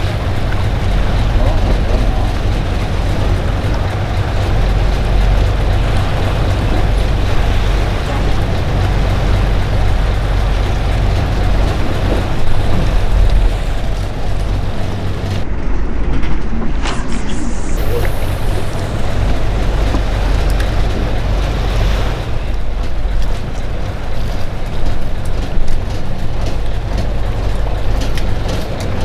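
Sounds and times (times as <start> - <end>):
boat engine running: 0.0 - 29.0
rush of wind and water: 0.0 - 29.0.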